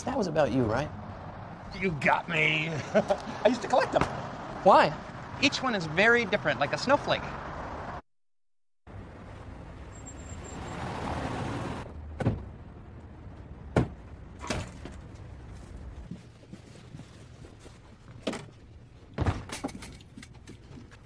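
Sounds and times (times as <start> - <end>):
sharp knocks and clunks: 3.9 - 4.3, 12.2 - 12.5, 13.7 - 15.1, 19.2 - 19.9.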